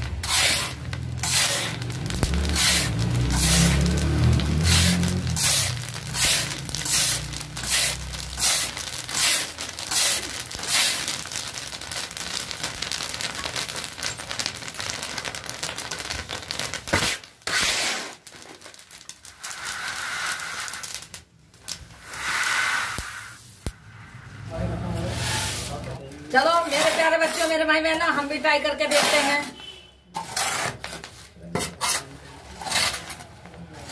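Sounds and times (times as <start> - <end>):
scraping hiss: 0.0 - 11.4, 19.4 - 21.0, 22.0 - 26.0
metal paddle stirring in sand: 0.2 - 1.8, 2.5 - 3.8, 4.7 - 11.0.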